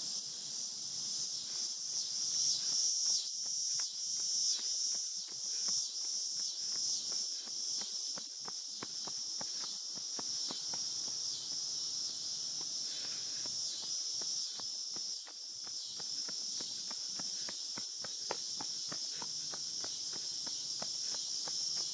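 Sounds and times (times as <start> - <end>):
pulsing insect chorus: 0.0 - 21.9
footsteps on pavement: 1.6 - 21.9.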